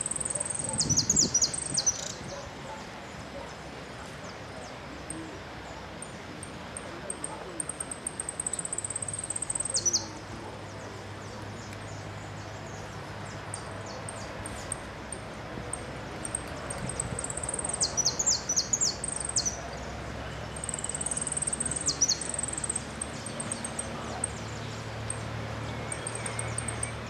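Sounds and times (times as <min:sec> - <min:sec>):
bird twittering trills: 0:00.0 - 0:02.8, 0:06.0 - 0:10.2, 0:15.7 - 0:27.0.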